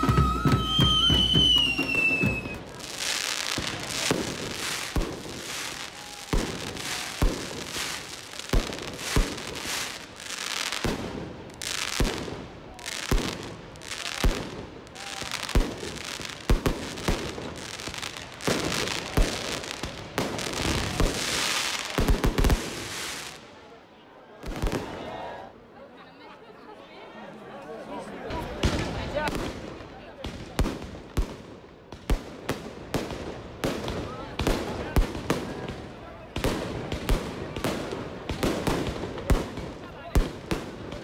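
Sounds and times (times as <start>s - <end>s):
falling whistle: 0.0s - 2.7s
fireworks bangs: 0.0s - 23.7s, 28.3s - 41.0s
fireworks hiss and crackle: 0.0s - 23.8s, 28.3s - 41.0s.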